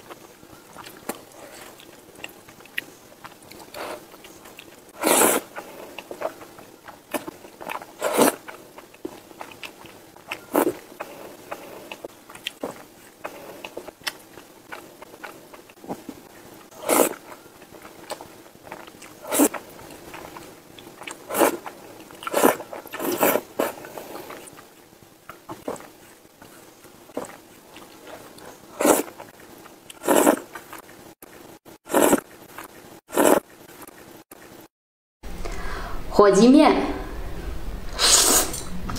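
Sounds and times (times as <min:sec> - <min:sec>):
wet chewing: 0:00.0 - 0:34.4
person slurping noodles: 0:05.0 - 0:06.4, 0:07.7 - 0:08.5, 0:16.8 - 0:17.2, 0:19.2 - 0:19.6, 0:21.3 - 0:24.5, 0:28.7 - 0:29.2, 0:30.0 - 0:30.5, 0:31.9 - 0:32.2, 0:33.1 - 0:33.4, 0:38.0 - 0:38.6.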